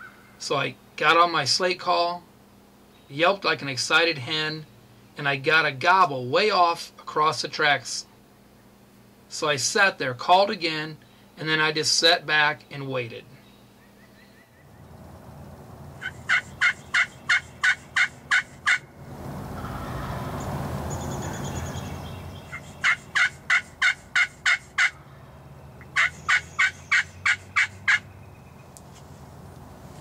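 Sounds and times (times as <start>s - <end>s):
turkey call yelps: 0.0s - 0.4s, 16.0s - 20.5s, 22.4s - 25.1s, 25.8s - 28.4s
soft rushing noise: 18.9s - 22.8s.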